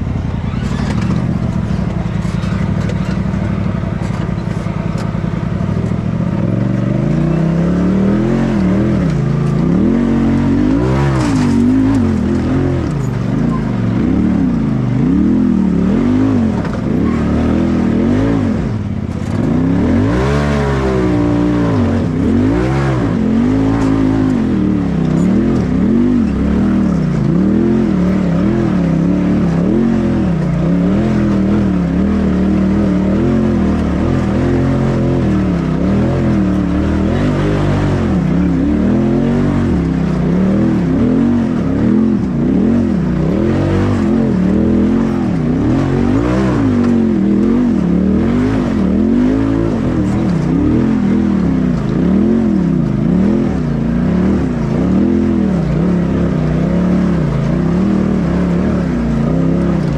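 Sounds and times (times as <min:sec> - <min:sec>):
off-road vehicle engine revving: 0:00.0 - 0:59.9.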